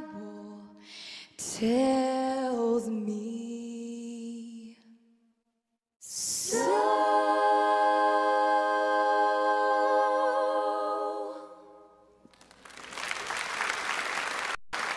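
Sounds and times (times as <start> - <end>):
audience applause: 12.3 - 14.9.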